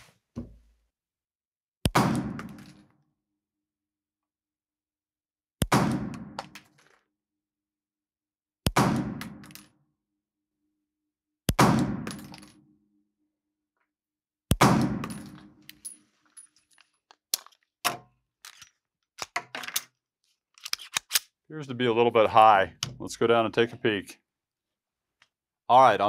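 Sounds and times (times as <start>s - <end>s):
pistol shots ringing indoors: 8.7s - 9.7s, 11.6s - 12.6s, 14.5s - 15.8s
pistol clicks and clanks: 17.0s - 19.9s, 20.6s - 21.4s.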